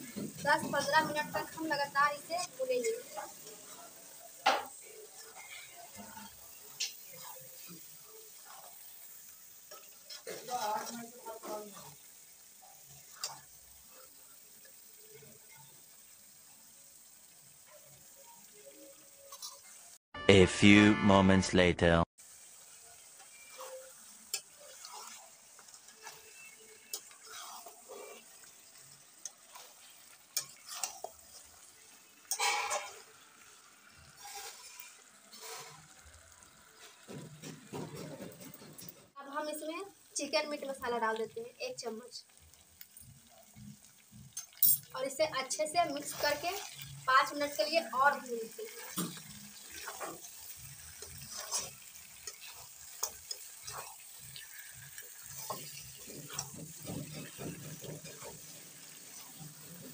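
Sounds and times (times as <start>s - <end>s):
metal spatula scraping pan: 0.0s - 12.1s, 12.7s - 14.2s, 19.3s - 19.8s, 23.2s - 38.8s, 45.9s - 59.9s
faint sizzle of frying: 0.0s - 20.0s, 22.2s - 59.9s.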